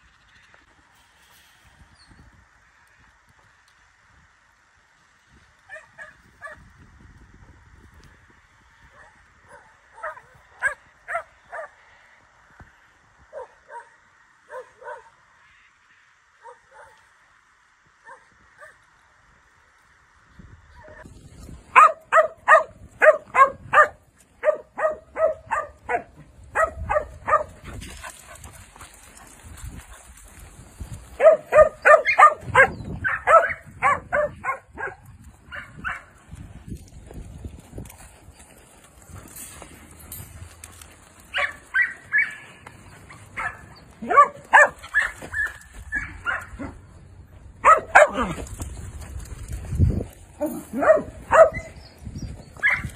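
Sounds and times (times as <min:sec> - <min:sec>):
dog barking: 0:09.0 - 0:11.7, 0:13.3 - 0:15.2, 0:16.4 - 0:17.0, 0:21.7 - 0:27.6, 0:31.2 - 0:36.1, 0:41.3 - 0:42.4, 0:43.4 - 0:46.8, 0:47.6 - 0:48.4, 0:50.4 - 0:51.7.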